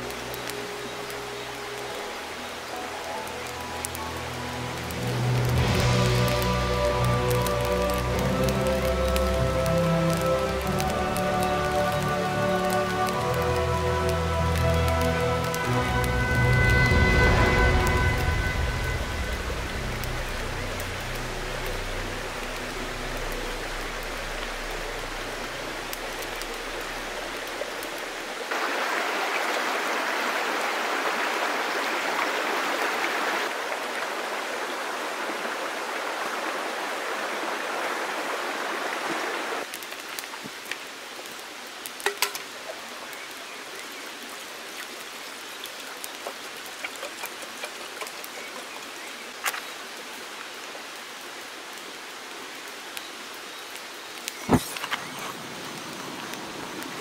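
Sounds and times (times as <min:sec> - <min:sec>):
stream running over rocks: 0:00.0 - 0:57.0.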